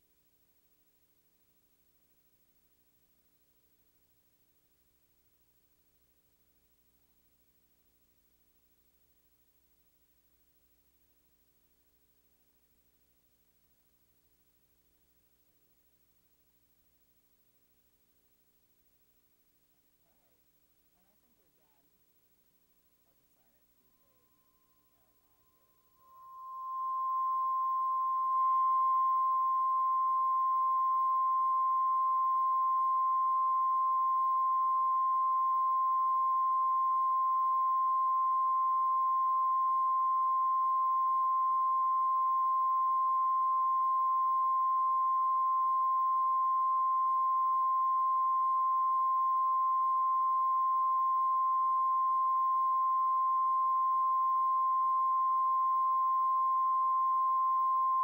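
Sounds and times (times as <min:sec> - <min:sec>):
steady test tone: 0:22.9 - 0:58.0.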